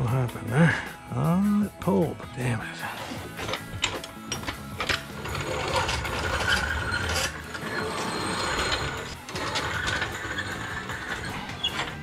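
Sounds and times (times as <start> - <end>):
floor jack rolling on concrete: 3.3 - 12.0.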